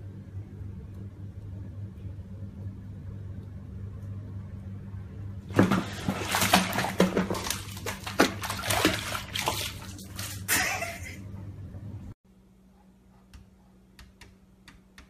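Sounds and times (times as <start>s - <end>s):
cat splashing in water: 5.5s - 10.9s.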